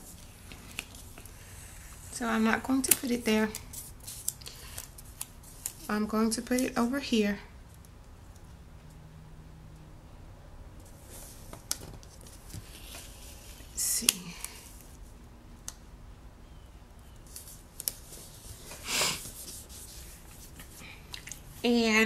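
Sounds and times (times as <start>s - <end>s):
papery swishes: 17.3s - 20.9s
sticker rubbed on paper: 18.1s - 20.8s.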